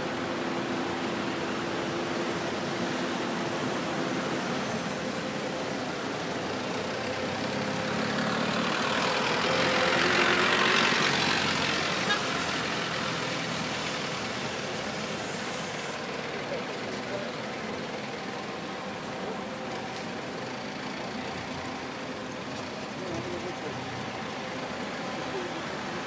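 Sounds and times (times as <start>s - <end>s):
traffic hum: 0.0s - 26.0s
vehicle passing: 7.2s - 15.5s.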